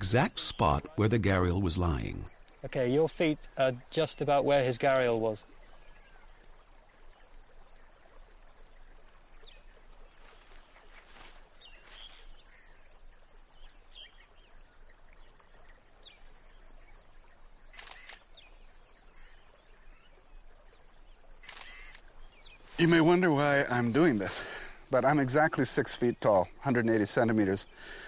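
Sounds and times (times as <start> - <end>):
camera shutter clicking: 21.5 - 22.0.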